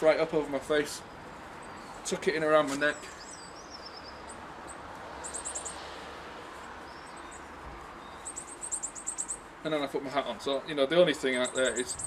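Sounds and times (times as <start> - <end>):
outdoor background hiss: 0.0 - 12.0
small birds chirping: 0.0 - 12.0.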